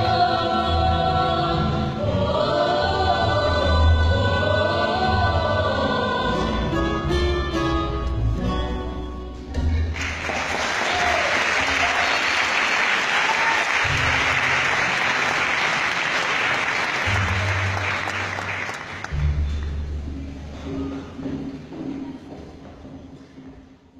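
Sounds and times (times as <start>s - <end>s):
audience applauding: 10.0s - 19.6s.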